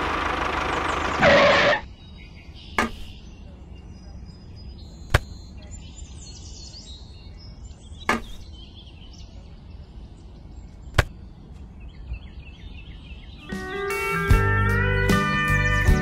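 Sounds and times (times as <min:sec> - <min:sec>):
birds chirping: 0:00.0 - 0:16.0
sharp knocks: 0:08.1 - 0:08.4.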